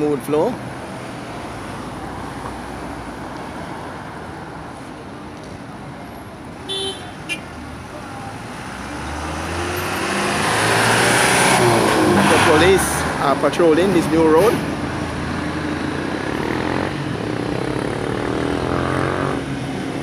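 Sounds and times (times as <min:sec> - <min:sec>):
road traffic: 0:00.0 - 0:20.0
vehicle approaching: 0:07.6 - 0:20.0.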